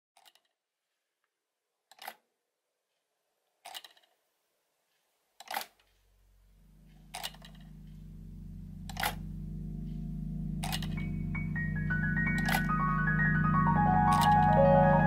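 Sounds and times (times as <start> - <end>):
low music drone: 6.5 - 15.0
sharp mechanical clicks: 6.9 - 8.0, 8.9 - 9.2.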